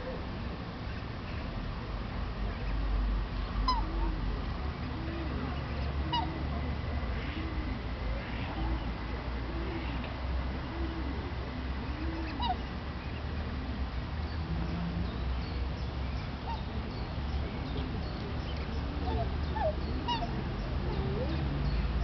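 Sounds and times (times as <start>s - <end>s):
swans calling: 3.6s - 4.2s, 6.1s - 6.4s, 11.9s - 12.8s, 19.0s - 21.5s.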